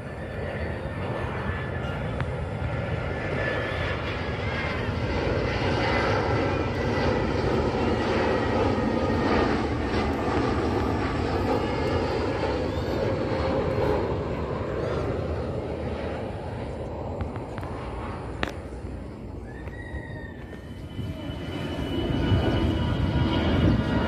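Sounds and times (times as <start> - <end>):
jet airliner passing overhead: 0.0 - 24.0.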